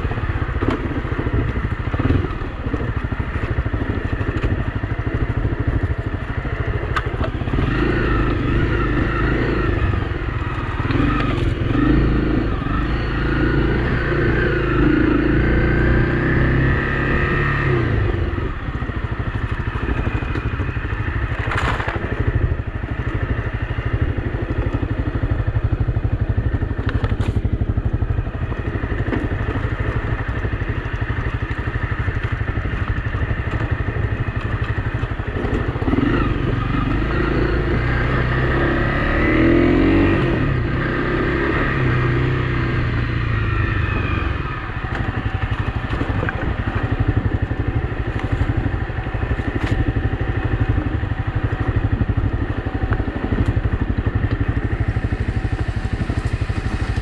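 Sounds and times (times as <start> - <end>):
motorcycle engine on dirt trail: 0.0 - 57.0
bike rattling: 18.8 - 36.7, 44.8 - 57.0.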